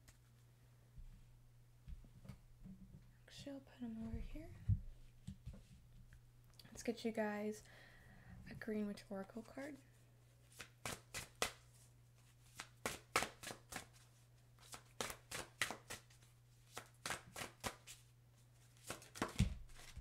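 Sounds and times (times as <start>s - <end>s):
cards being shuffled: 10.4s - 20.0s.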